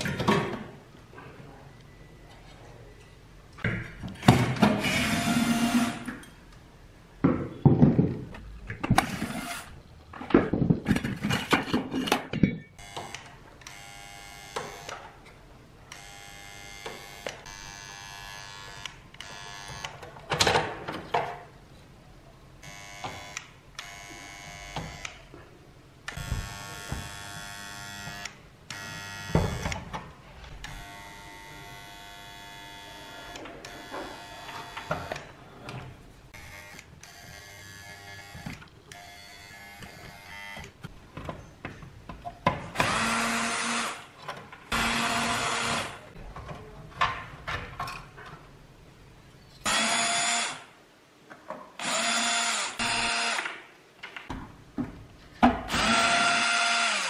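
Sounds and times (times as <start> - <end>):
cordless drill driver: 42.8 - 44.0, 44.7 - 45.9, 49.7 - 50.6, 51.8 - 53.6, 55.7 - 57.0.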